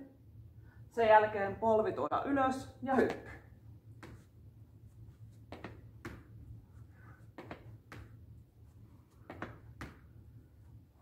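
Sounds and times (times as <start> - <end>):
faint low hum: 0.0 - 11.0
sneaker footfalls on floor: 5.4 - 6.3.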